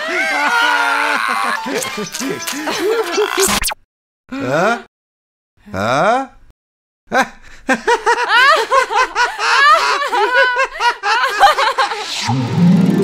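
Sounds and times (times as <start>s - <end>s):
high-pitched giggling: 1.5s - 3.6s.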